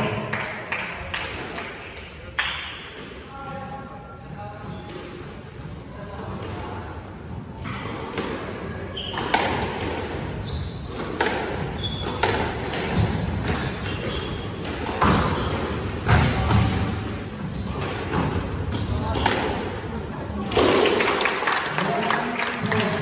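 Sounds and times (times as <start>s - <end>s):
squash ball hitting rackets and walls: 7.5s - 19.8s, 20.4s - 21.2s
shoes squeaking on hardwood floor: 8.9s - 9.6s, 10.3s - 16.0s, 17.4s - 20.3s.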